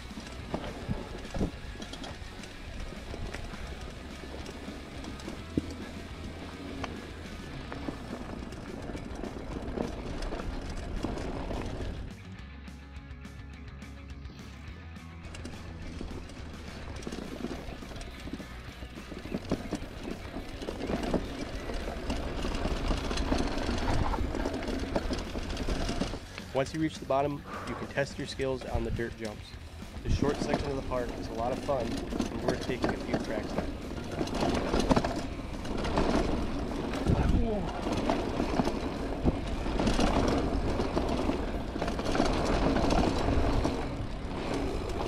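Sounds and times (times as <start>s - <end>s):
bike rattling over bumps: 0.0s - 12.4s, 14.4s - 45.0s
bike tyres on packed dirt: 0.0s - 12.8s, 13.4s - 45.0s
wind rumble on microphone: 32.4s - 45.0s.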